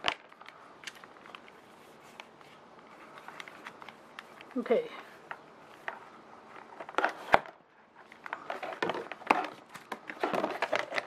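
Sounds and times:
rustling: 0:00.0 - 0:11.0
packaging clicks and knocks: 0:08.2 - 0:11.0.

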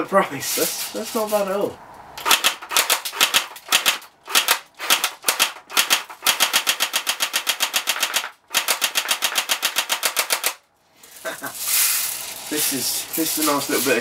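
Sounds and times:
airsoft gun firing full auto: 0:02.2 - 0:10.6.

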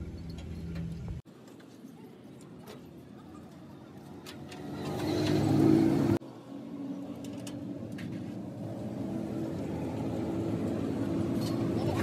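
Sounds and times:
steady engine hum: 0:00.0 - 0:12.0.

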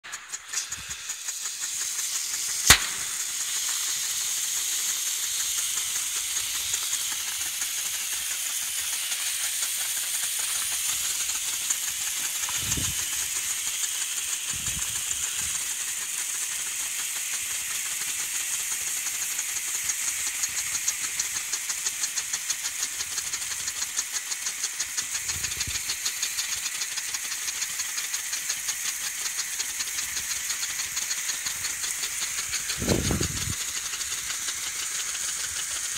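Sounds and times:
flares hissing: 0:00.1 - 0:22.5, 0:24.8 - 0:35.9
fine rapid crackle: 0:24.9 - 0:35.9.

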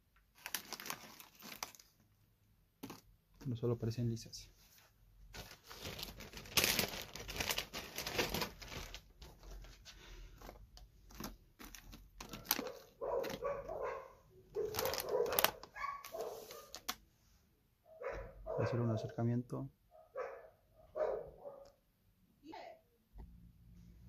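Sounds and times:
plastic bag crinkling: 0:00.3 - 0:02.0, 0:02.8 - 0:03.1, 0:05.3 - 0:17.0
dog barking: 0:12.4 - 0:16.8, 0:17.8 - 0:19.0, 0:19.9 - 0:21.8.

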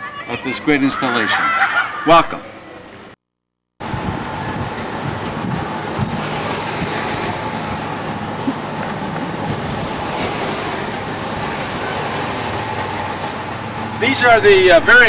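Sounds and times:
motor vehicle running: 0:03.8 - 0:15.0.

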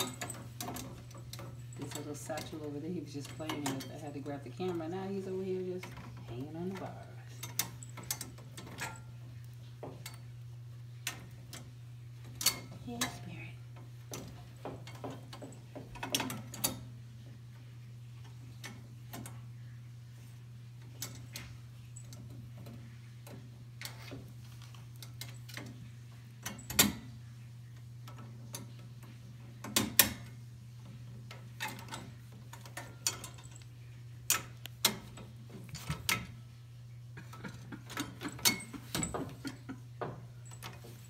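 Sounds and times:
metal gate bars knocking: 0:00.0 - 0:10.2, 0:37.2 - 0:40.9
steady low hum: 0:00.0 - 0:41.0.

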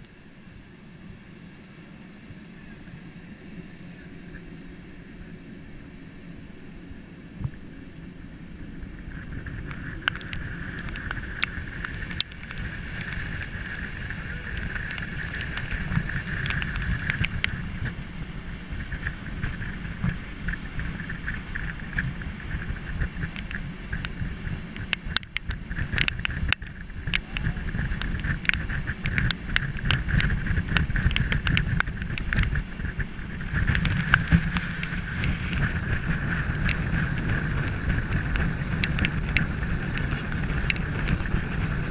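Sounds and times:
high-pitched whine: 0:00.0 - 0:41.9
wind buffeting microphone: 0:06.4 - 0:41.9
sharp ticks: 0:09.0 - 0:41.7.

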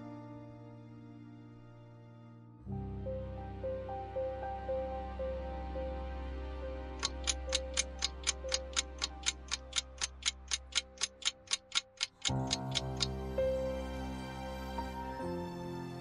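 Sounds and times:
soft background music: 0:00.0 - 0:16.0
clock ticking: 0:07.0 - 0:13.1.

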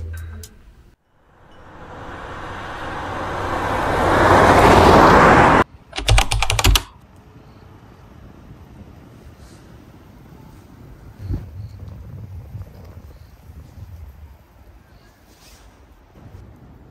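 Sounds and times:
whoosh: 0:01.2 - 0:05.6
keyboard typing clicks: 0:05.9 - 0:07.0
faint wind on microphone: 0:08.4 - 0:16.9.

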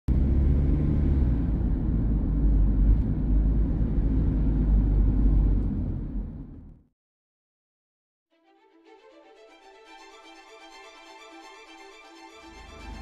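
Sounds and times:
moving car rumble: 0:00.1 - 0:06.9.

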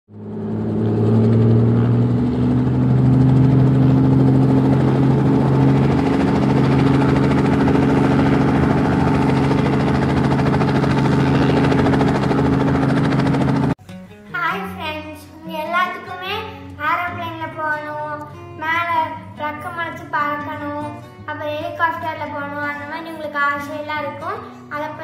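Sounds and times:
helicopter engine drone: 0:00.1 - 0:13.8.

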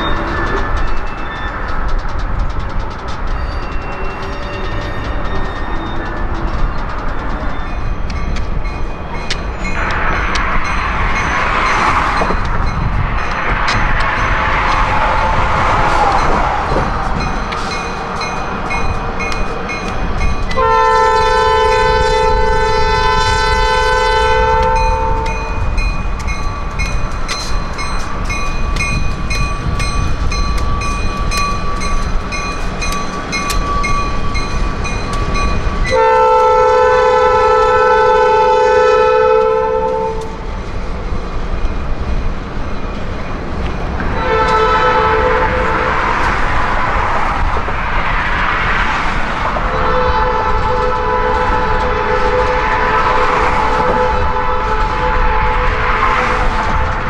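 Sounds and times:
freight train rumbling: 0:00.0 - 0:57.0
wheels clicking over rail joints: 0:00.0 - 0:57.0
locomotive air horn blasts: 0:20.5 - 0:25.6, 0:35.9 - 0:40.4, 0:44.2 - 0:46.0, 0:49.7 - 0:56.9.

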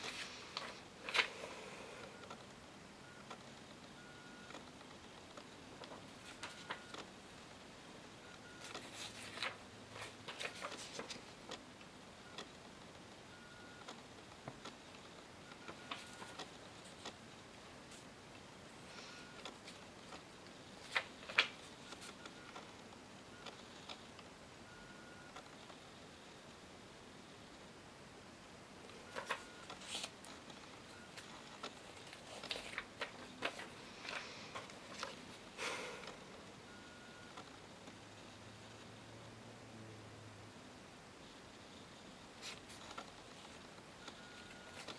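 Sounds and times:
paper cards rustling: 0:00.0 - 0:01.5, 0:05.8 - 0:07.0, 0:08.6 - 0:11.6, 0:15.6 - 0:17.2, 0:20.8 - 0:22.2, 0:28.9 - 0:35.4, 0:42.4 - 0:44.9.

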